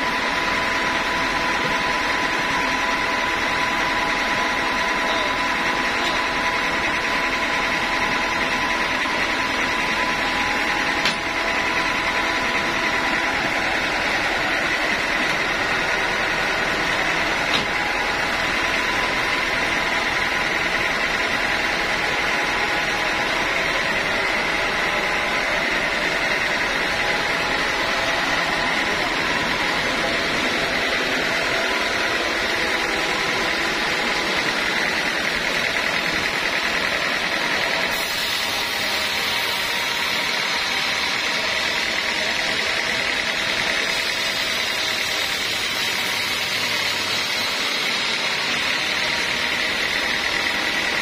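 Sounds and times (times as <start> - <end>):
band sawmill humming and whining: 0.0 - 51.0.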